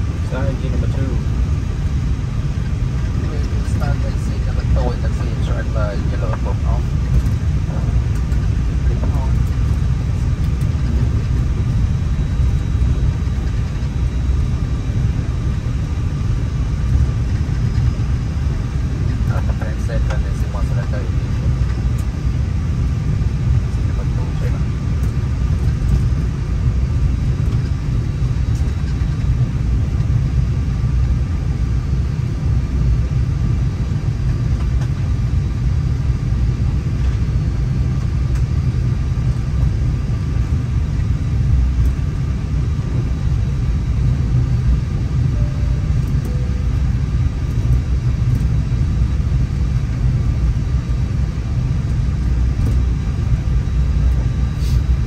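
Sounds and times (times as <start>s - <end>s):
aircraft cockpit rumble: 0.0s - 55.0s
faint high tone: 45.3s - 46.8s.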